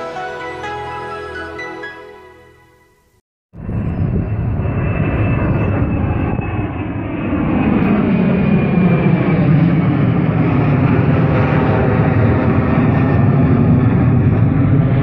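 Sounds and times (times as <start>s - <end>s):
jet airliner passing overhead: 3.6s - 15.0s.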